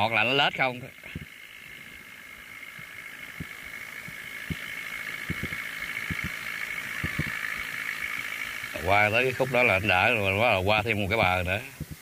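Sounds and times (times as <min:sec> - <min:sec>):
farm machinery engines running: 0:00.0 - 0:12.0.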